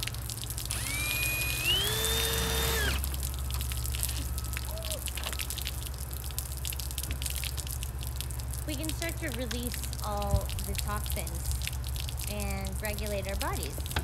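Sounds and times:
water streaming and dripping: 0:00.0 - 0:14.0
cordless drill whirring: 0:00.7 - 0:03.1.

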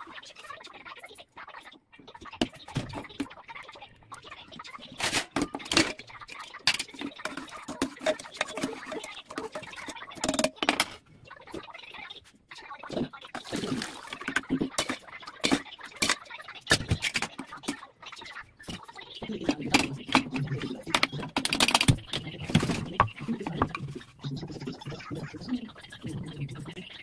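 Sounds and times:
lid and ladle clinking: 0:06.6 - 0:09.4.

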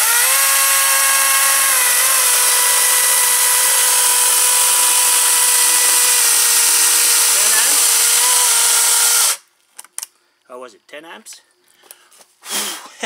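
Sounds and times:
chainsaw cutting wood: 0:00.0 - 0:09.4.

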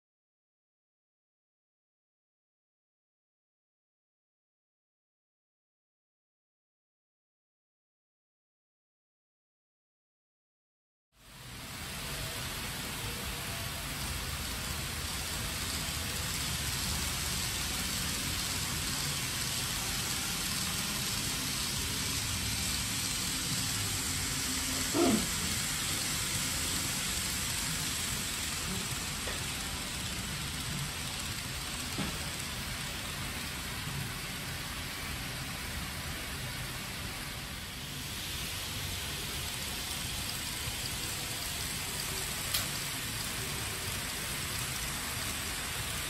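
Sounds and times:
model train wheels rattling: 0:11.4 - 0:46.0.

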